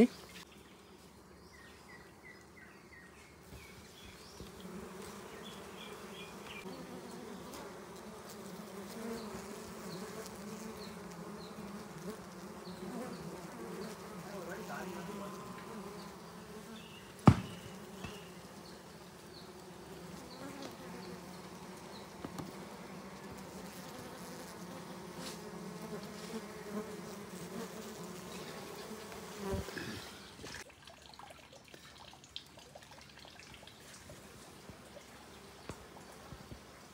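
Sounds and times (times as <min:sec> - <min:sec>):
honeybees buzzing: 0:00.0 - 0:30.6, 0:34.2 - 0:36.9
sharp knock: 0:17.2 - 0:18.2
soft bump: 0:17.2 - 0:18.2.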